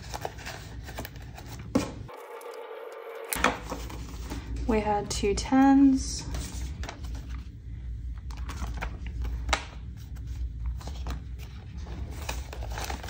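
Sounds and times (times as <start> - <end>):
paper rustling: 0.0 - 1.8, 6.2 - 7.5, 8.2 - 13.0
steady low hum: 0.0 - 13.0.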